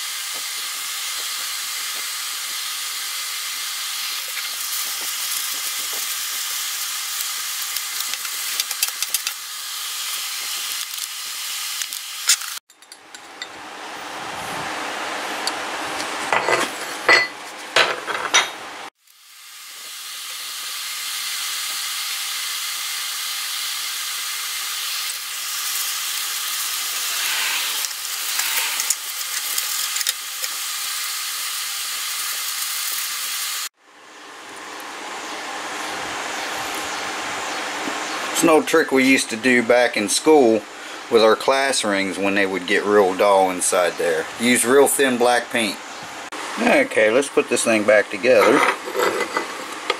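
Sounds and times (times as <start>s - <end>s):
paper towel rubbing metal: 26.7s - 29.1s.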